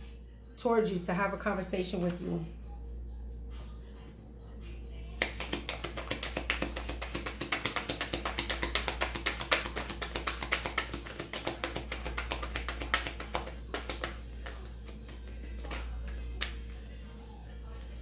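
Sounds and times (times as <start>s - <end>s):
soft background music: 0.0s - 18.0s
cards shuffling: 5.2s - 16.5s.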